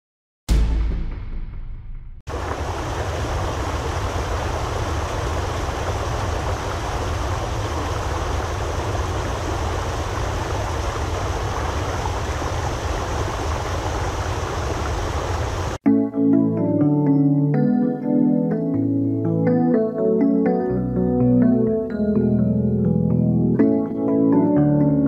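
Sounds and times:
water rushing over weir: 2.3 - 15.8.

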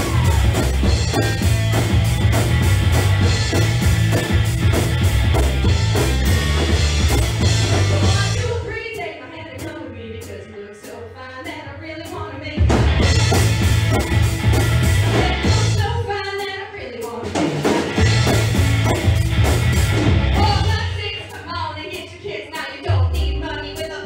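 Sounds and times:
live rock band playing: 0.0 - 8.6, 12.6 - 16.0, 17.2 - 21.0
woman singing: 7.8 - 12.7, 15.1 - 17.5, 20.4 - 24.0.

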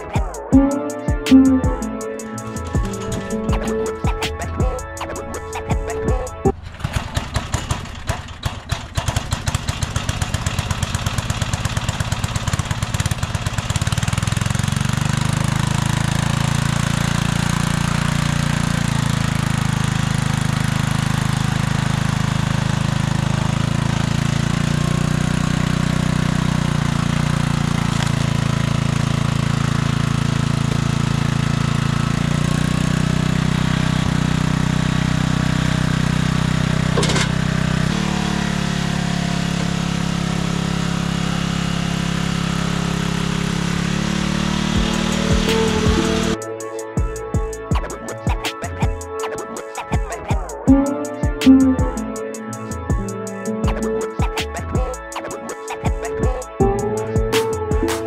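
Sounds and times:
small gasoline engine running: 6.5 - 46.4.

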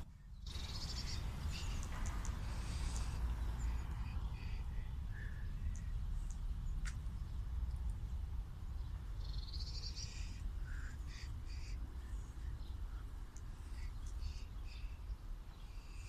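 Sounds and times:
harsh bird calls: 0.0 - 6.9, 8.8 - 16.0
steady low rumble: 0.0 - 16.0
bird trill: 0.3 - 5.9.

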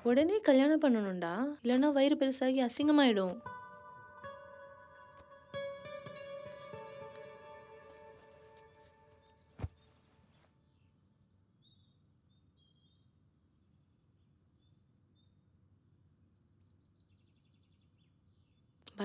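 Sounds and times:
guitar chord ringing: 3.1 - 9.6
sharp thump: 9.6 - 9.9.

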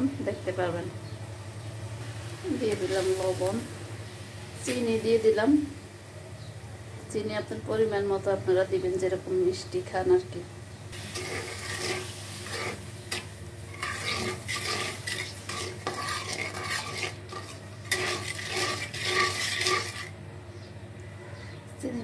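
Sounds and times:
spatula scraping a wok: 11.0 - 20.2.

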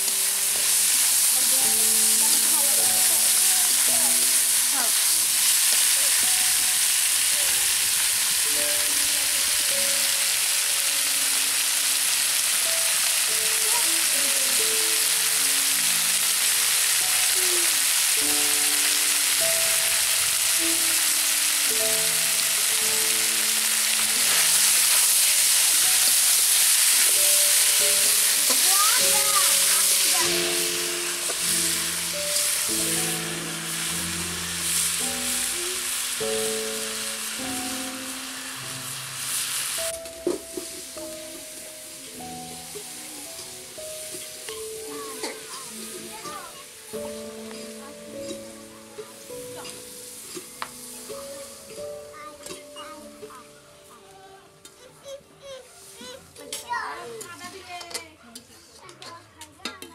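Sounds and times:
food sizzling in oil: 0.0 - 57.9
quiet background melody: 0.0 - 57.9.

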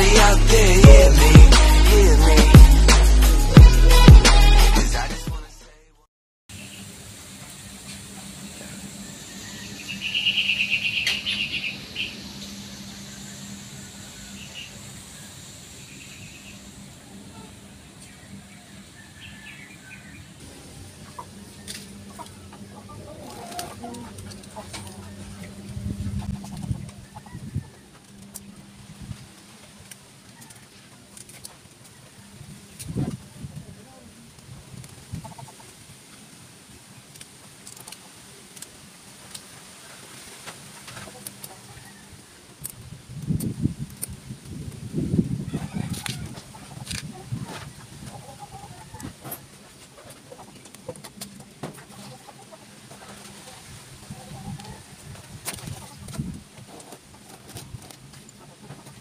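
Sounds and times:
steady low hum: 6.6 - 30.2
short bird calls: 9.2 - 15.3
chickens clucking: 16.2 - 29.7, 34.8 - 35.8, 40.4 - 42.4, 45.2 - 59.0.

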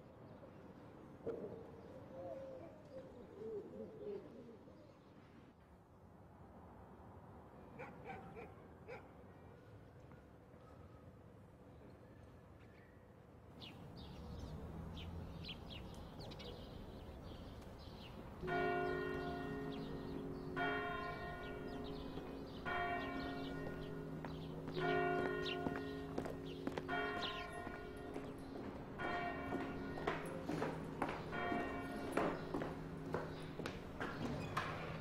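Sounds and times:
small birds chirping: 13.6 - 18.2, 18.8 - 30.4
church bell tolling: 18.4 - 35.0.

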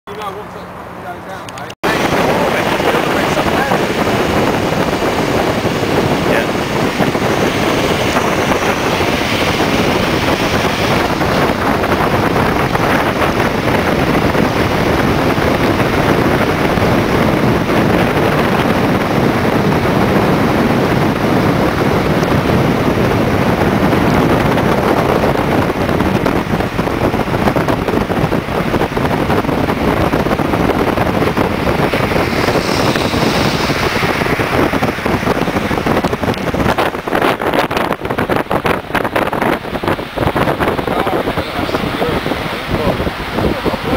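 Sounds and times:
wind rushing over microphone: 0.1 - 43.9
car road noise from inside: 0.2 - 43.9.

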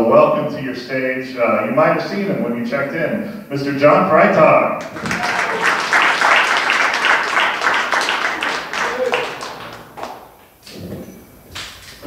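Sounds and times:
audience applauding: 4.8 - 10.7.

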